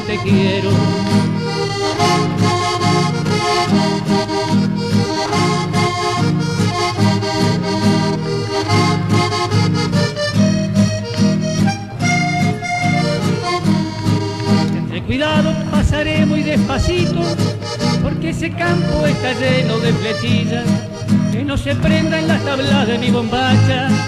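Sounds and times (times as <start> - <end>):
accordion folk music: 0.0 - 24.0.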